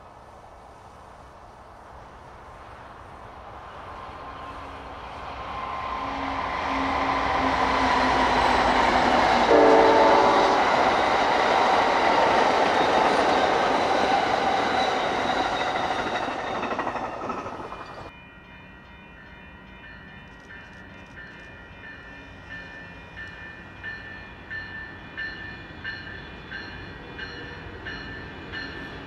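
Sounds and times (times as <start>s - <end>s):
passenger train passing at speed: 0.0s - 29.0s
train horn blast: 5.6s - 11.4s.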